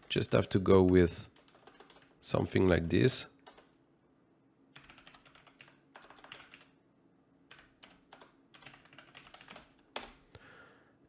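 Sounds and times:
faint typing on computer keyboard: 0.0s - 3.8s, 4.7s - 6.8s, 7.5s - 10.2s.

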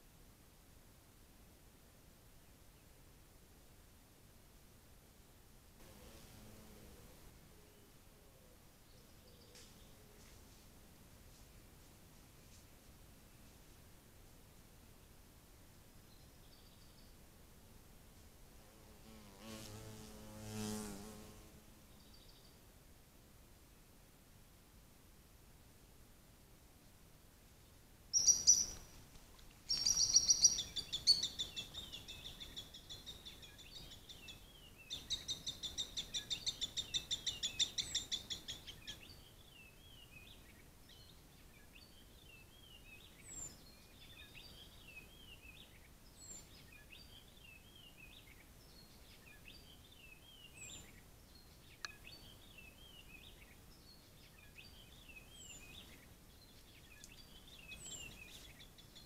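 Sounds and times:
bird chirping and trilling: 28.2s - 28.8s, 29.7s - 32.6s.

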